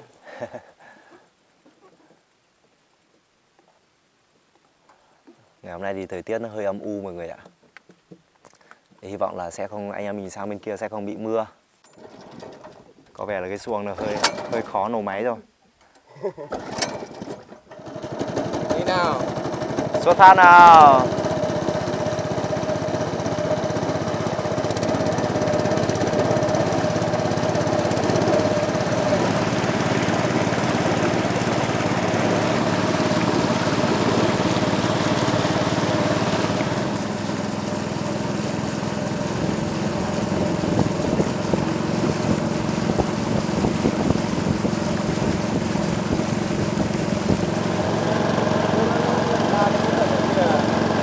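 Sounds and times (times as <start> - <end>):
motorboat engine running: 16.6 - 51.0.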